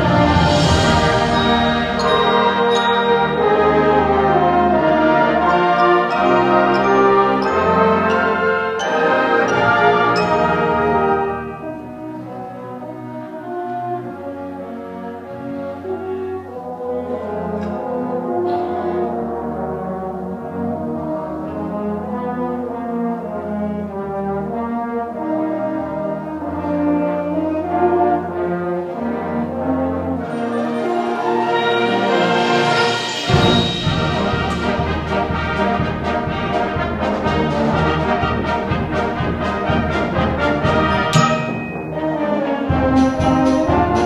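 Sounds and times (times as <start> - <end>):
concert band playing: 0.0 - 13.9, 29.6 - 44.0
cymbal crash: 32.4 - 35.1.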